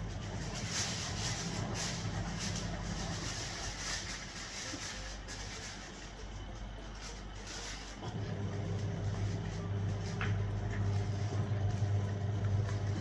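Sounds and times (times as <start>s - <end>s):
low motor hum: 8.0s - 13.0s.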